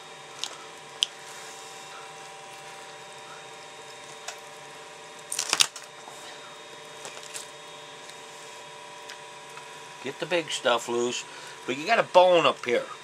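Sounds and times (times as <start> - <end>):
steady low hum: 0.0 - 13.0
wet crackles of fish flesh: 0.3 - 5.9, 6.8 - 9.8.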